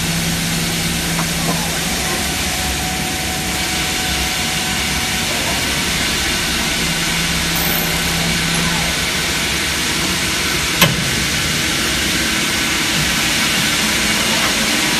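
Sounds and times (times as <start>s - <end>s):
machine hum: 0.0s - 12.3s
lathe machine running: 0.0s - 14.9s
sharp metal clank: 7.6s - 9.3s.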